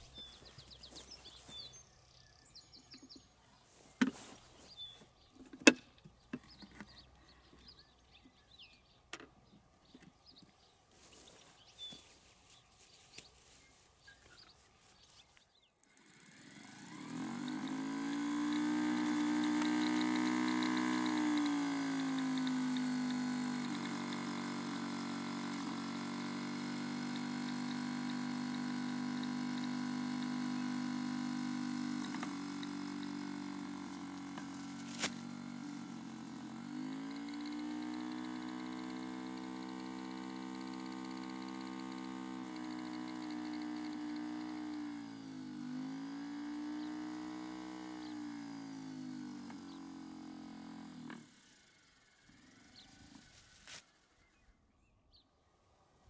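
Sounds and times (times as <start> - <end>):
lure machine motor running: 0.0 - 1.7, 15.8 - 53.6.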